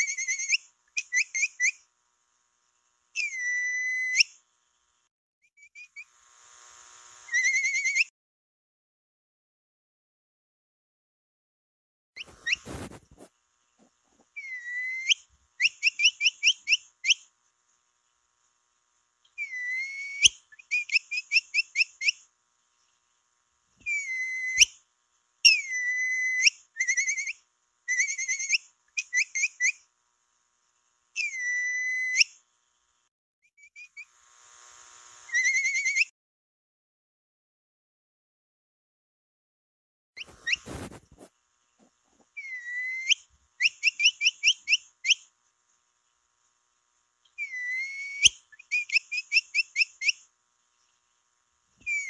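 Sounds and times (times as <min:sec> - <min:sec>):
capybara whistling calls: 0:03.2 - 0:04.3, 0:07.3 - 0:08.1, 0:14.4 - 0:17.2, 0:19.4 - 0:22.2, 0:23.8 - 0:24.8, 0:25.5 - 0:29.8, 0:31.2 - 0:32.3, 0:35.3 - 0:36.1, 0:42.4 - 0:45.2, 0:47.4 - 0:50.2
short chirps: 0:12.2 - 0:13.2, 0:40.2 - 0:41.3.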